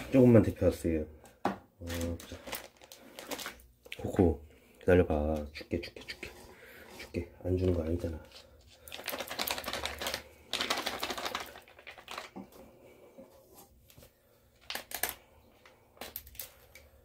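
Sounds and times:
plastic pouches crinkling: 0:01.8 - 0:04.4, 0:07.5 - 0:12.7, 0:13.9 - 0:17.0.

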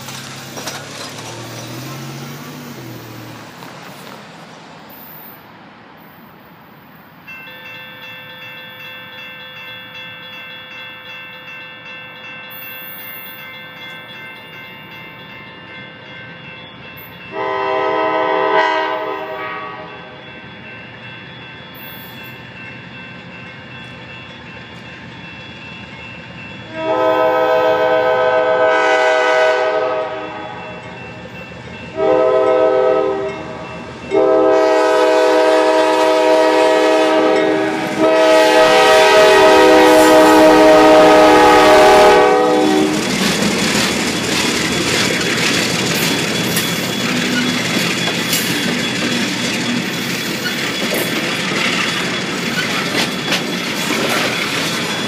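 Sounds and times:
train rumbling and clattering: 0:00.0 - 0:55.0
train air horn blasts: 0:17.3 - 0:20.1, 0:26.7 - 0:30.6, 0:31.9 - 0:43.2.

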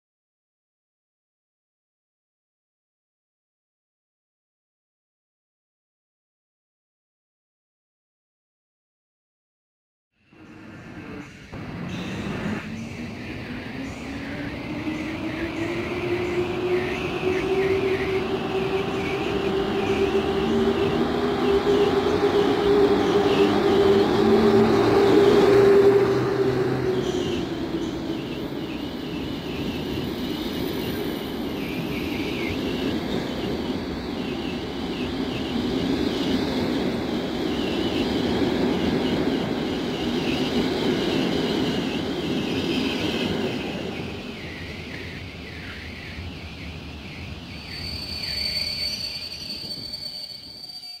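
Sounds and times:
electric locomotive whine: 0:10.2 - 0:51.0
thin high squeal: 0:47.6 - 0:51.0.

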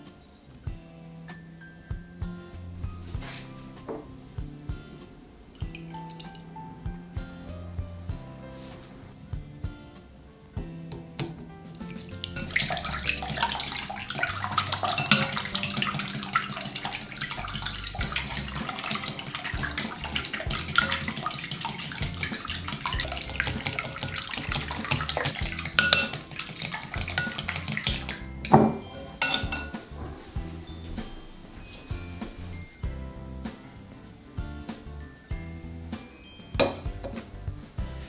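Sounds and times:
louder knocks on bowl: 0:27.2 - 0:29.8, 0:36.6 - 0:37.2.

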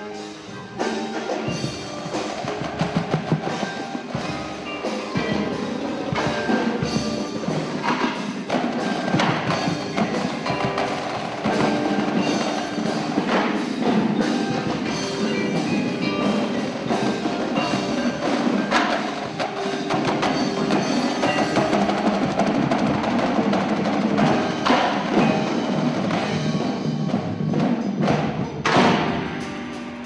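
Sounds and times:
drumline drums: 0:00.0 - 0:30.0
marimbas: 0:00.0 - 0:30.0
loud accented drum hit: 0:16.9 - 0:30.0.

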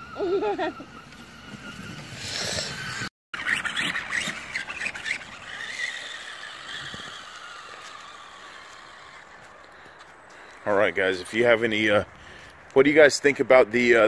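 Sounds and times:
electric motor whining: 0:00.0 - 0:09.9.

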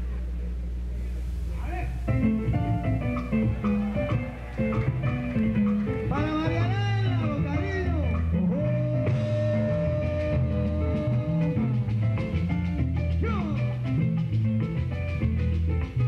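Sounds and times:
salsa song: 0:01.7 - 0:16.0
man singing: 0:06.1 - 0:11.8.

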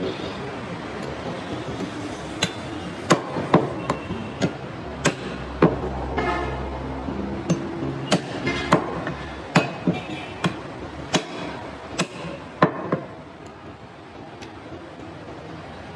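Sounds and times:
cleaver chopping on wooden block: 0:04.4 - 0:05.8, 0:07.5 - 0:13.1.

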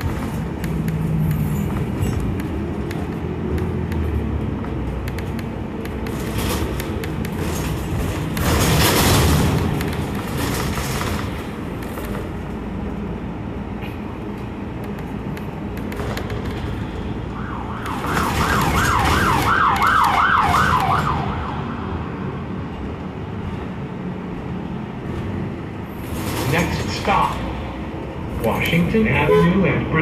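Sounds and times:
bus engine: 0:00.0 - 0:30.0
road noise: 0:00.0 - 0:30.0
siren wailing: 0:17.3 - 0:21.9.

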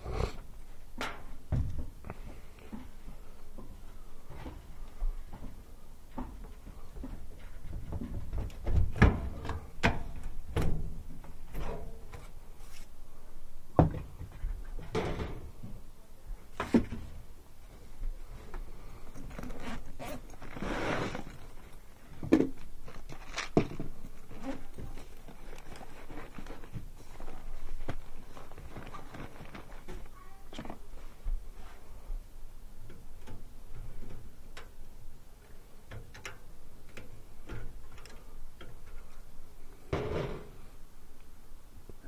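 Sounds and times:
tool bag rustling: 0:19.1 - 0:21.9, 0:22.8 - 0:30.1.

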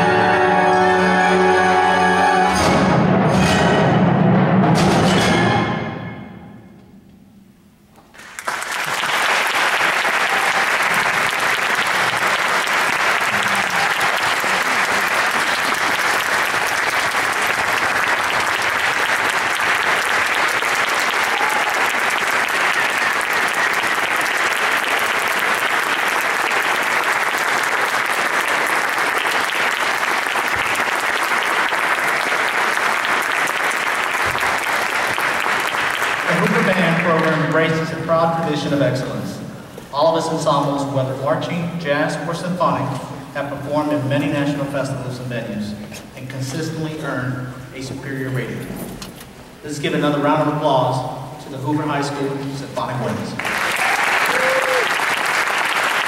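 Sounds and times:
audience applauding: 0:08.1 - 0:37.9, 0:53.1 - 0:56.0.

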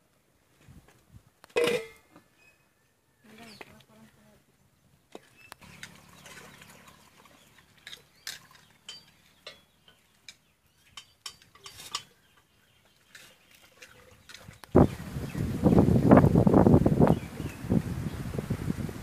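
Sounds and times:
metal cooking vessels clinking: 0:01.6 - 0:02.0, 0:07.8 - 0:12.5.

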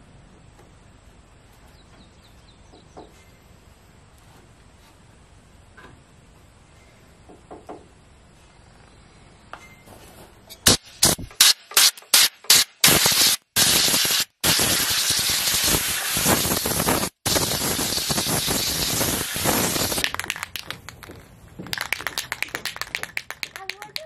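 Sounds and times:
spray hissing from nozzle: 0:10.7 - 0:20.3.

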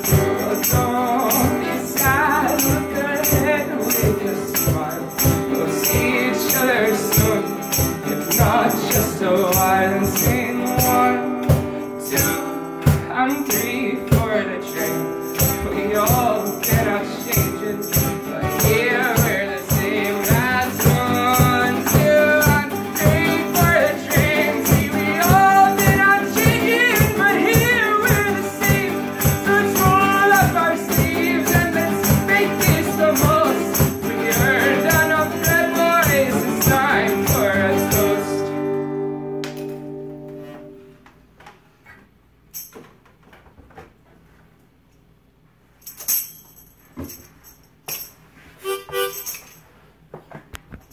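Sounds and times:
man singing: 0:00.0 - 0:38.6
acoustic guitar strumming: 0:00.0 - 0:41.0, 0:48.6 - 0:49.6.

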